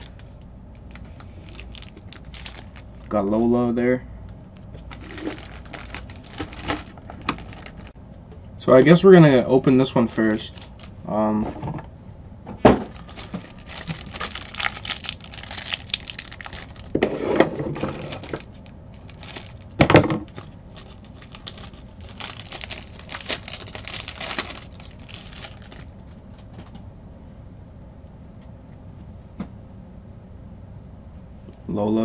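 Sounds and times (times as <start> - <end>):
wrapper tearing and crinkling: 0.0 - 3.1, 4.7 - 8.0, 10.4 - 11.0, 12.8 - 26.6.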